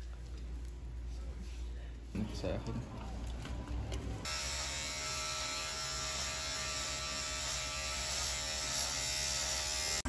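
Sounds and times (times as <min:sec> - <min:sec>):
electric beard trimmer buzzing: 0:04.3 - 0:10.0.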